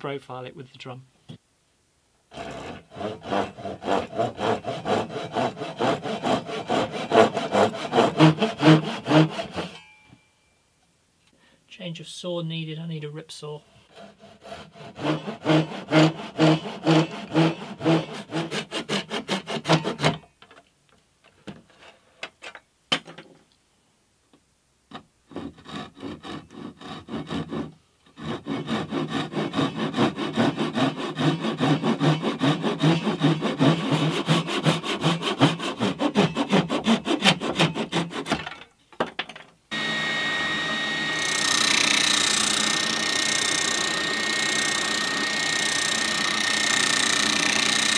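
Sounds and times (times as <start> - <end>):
hand saw cutting plywood: 2.3 - 9.8, 13.9 - 20.2, 25.3 - 38.5, 39.7 - 47.9.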